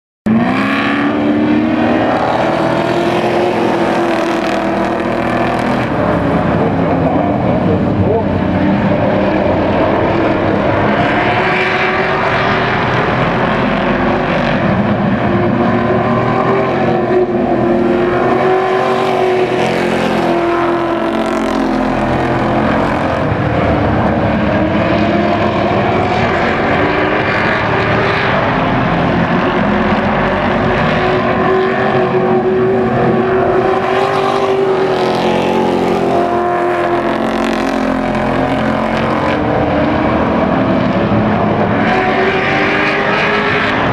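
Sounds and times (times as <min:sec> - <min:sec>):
race truck engines: 0:00.2 - 0:43.9.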